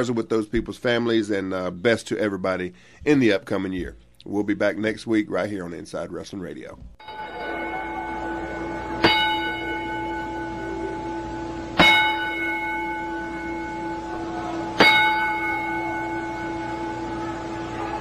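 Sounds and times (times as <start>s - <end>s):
ring bell struck: 7.0s - 18.0s.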